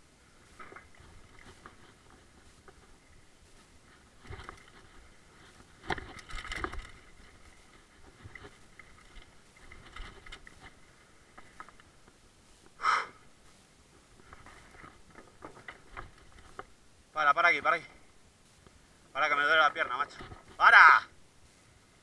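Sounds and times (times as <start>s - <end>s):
bike rattling over bumps: 0.5s - 12.2s, 14.1s - 17.8s, 19.2s - 20.8s.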